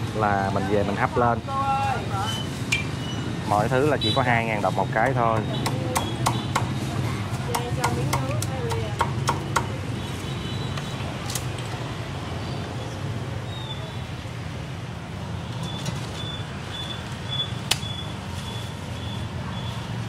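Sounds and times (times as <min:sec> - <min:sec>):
low hum of street traffic: 0:00.0 - 0:20.0.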